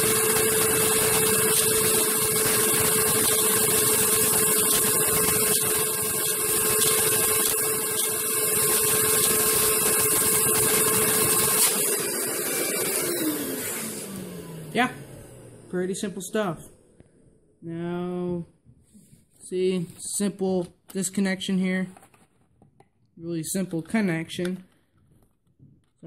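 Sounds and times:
toy engine whirring rattle: 1.3s - 9.5s.

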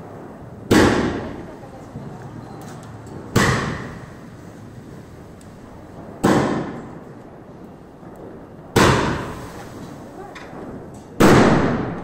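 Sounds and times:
fireworks bangs: 0.0s - 12.0s.

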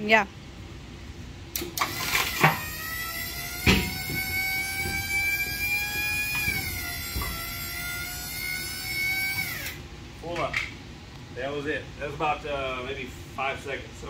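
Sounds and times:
hydraulic jack pump whining: 1.5s - 9.8s.

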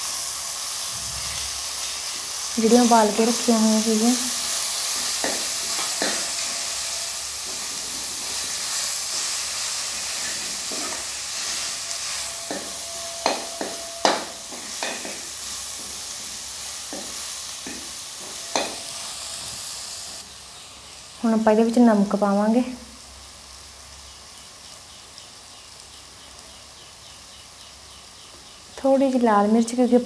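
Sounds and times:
food sizzling in a pan: 0.0s - 30.0s
metal ladle scraping and knocking pan: 4.9s - 6.7s, 10.2s - 16.0s, 16.9s - 18.9s.

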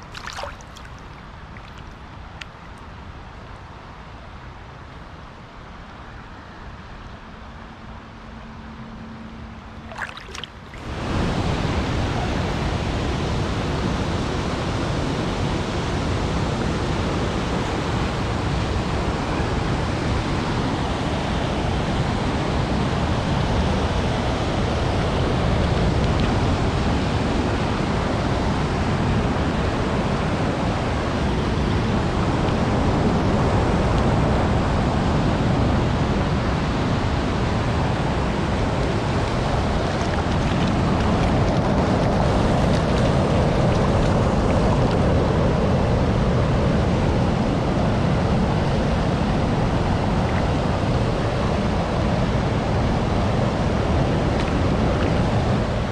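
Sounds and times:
river rapids rushing: 0.0s - 2.3s, 9.8s - 20.0s
flowing water: 0.0s - 4.5s, 9.6s - 55.9s.

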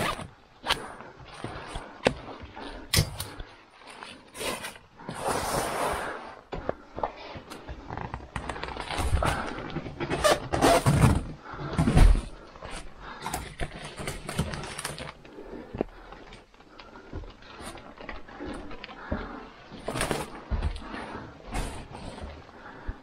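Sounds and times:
plastic-wrapped packs crinkling: 13.4s - 15.3s.

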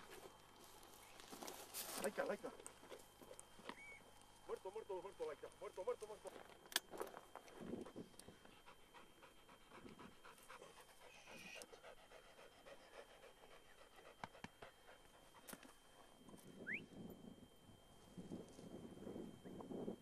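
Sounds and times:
dog panting faintly: 7.9s - 16.2s.

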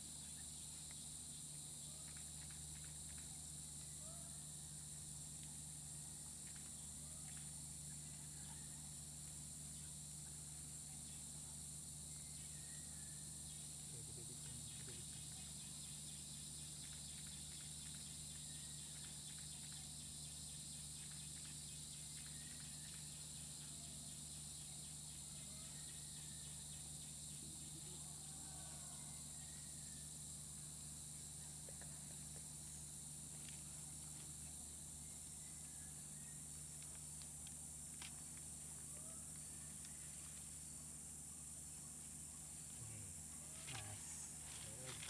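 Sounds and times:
insects droning: 0.0s - 45.0s.

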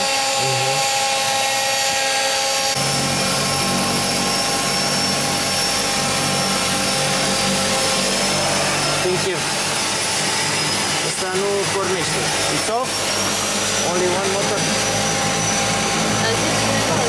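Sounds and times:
aircraft engine high whine: 0.0s - 17.0s.

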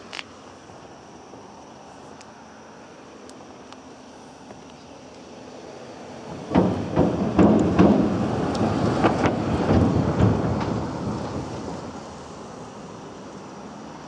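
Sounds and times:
vehicle rumbling over bridge: 4.9s - 14.0s
sharp knocks: 6.3s - 11.0s.

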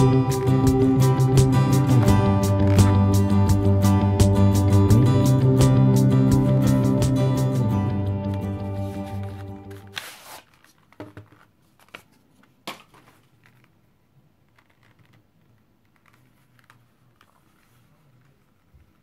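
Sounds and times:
paper band rustling: 8.3s - 13.8s, 14.5s - 19.0s
leather handling: 14.5s - 19.0s.

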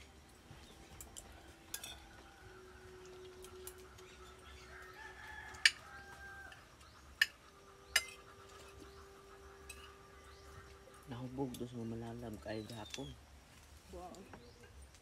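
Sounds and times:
cutlery clinking against plates: 1.0s - 2.0s, 7.2s - 8.7s
faint rooster crowing: 1.2s - 7.0s.

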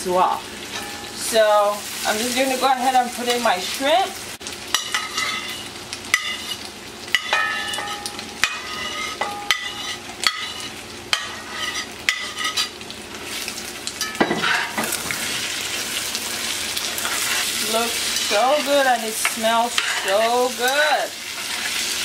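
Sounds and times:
frying sizzle: 0.0s - 22.0s
metal spatula striking with ring: 0.7s - 1.2s, 4.7s - 12.7s, 14.0s - 14.7s, 19.8s - 20.4s
stirring and scraping in pot: 7.2s - 12.7s, 16.8s - 20.4s, 21.2s - 22.0s.

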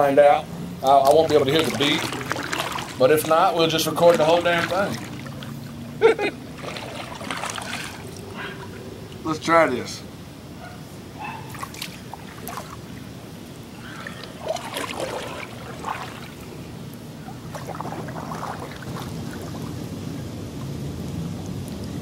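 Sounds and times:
paddle splashing in water: 1.1s - 8.8s, 11.5s - 13.0s, 13.9s - 16.6s, 17.2s - 19.8s.

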